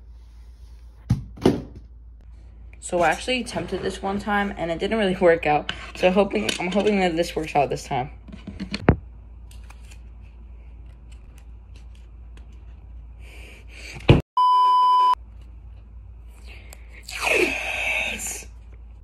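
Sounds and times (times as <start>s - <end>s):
electronic censor bleep: 14.4s - 15.2s.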